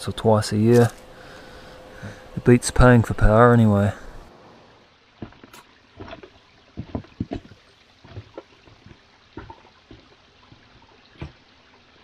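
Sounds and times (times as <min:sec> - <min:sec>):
stream trickling: 0:00.0 - 0:12.0
gumboot footsteps on wet stones: 0:00.6 - 0:01.1, 0:05.1 - 0:11.5.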